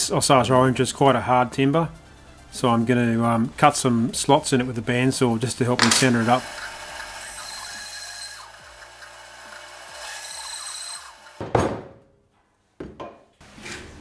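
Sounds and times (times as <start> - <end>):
bandsaw cutting wood: 5.8 - 11.4.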